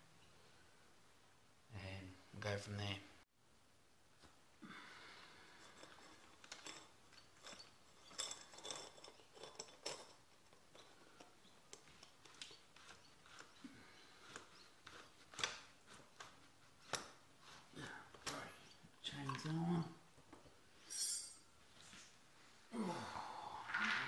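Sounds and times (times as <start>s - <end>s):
bike chain clinking and rattling: 5.6s - 11.3s.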